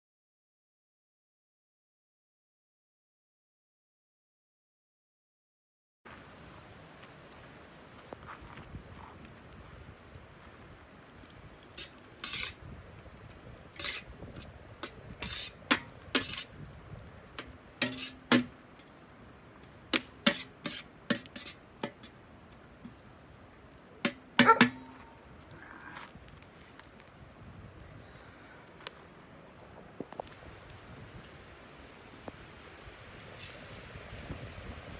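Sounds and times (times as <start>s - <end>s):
metal utensil scraping steel pan: 11.8s - 12.6s, 13.8s - 16.5s, 17.4s - 18.5s, 20.0s - 22.2s, 24.1s - 25.0s.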